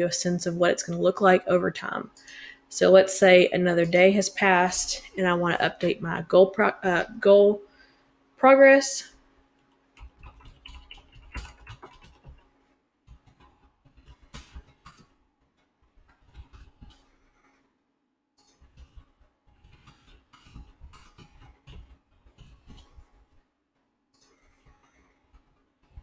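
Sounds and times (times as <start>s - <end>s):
typing on computer keyboard: 10.0s - 12.5s.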